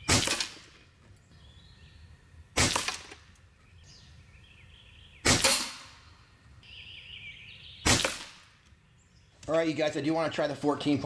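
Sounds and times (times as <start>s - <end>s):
air rifle shots: 0.0s - 0.8s, 2.5s - 3.3s, 5.2s - 6.1s, 7.8s - 8.6s.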